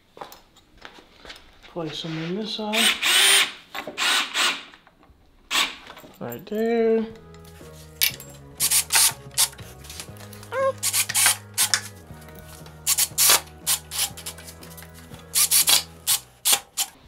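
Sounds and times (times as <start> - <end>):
background music with bass line: 7.1 - 16.5.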